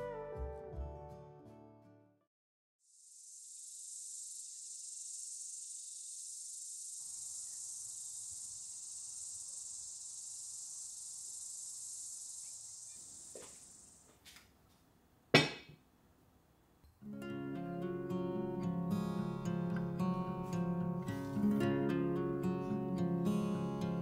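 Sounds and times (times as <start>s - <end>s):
high-pitched insect chorus: 2.8s - 14.2s.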